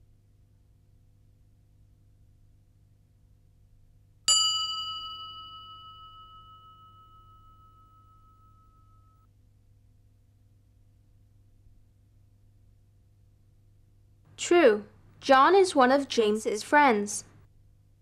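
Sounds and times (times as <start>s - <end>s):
bell-like ding: 4.3s - 9.3s.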